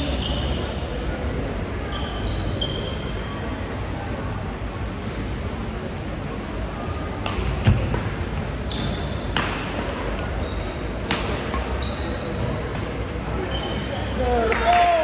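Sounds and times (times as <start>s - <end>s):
sneakers squeaking on court: 0.0s - 0.8s, 1.9s - 3.2s, 8.6s - 14.2s
rackets striking shuttlecock: 7.2s - 8.1s, 9.3s - 10.4s, 11.0s - 11.8s.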